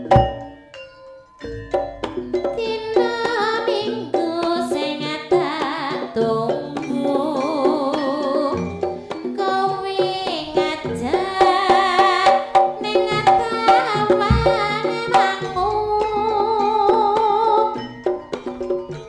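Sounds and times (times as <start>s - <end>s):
hand drum strokes: 0.0s - 0.6s, 12.8s - 15.3s
wavering melody line: 0.0s - 1.0s.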